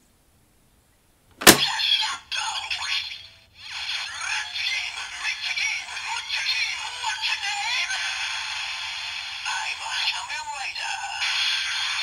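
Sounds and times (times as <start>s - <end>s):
synthesized announcer voice: 9.5s - 12.0s.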